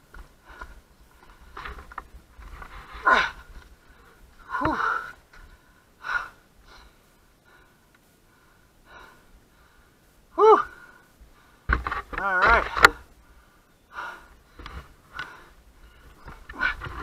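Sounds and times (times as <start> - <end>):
person gasping for breath: 4.4 - 5.2.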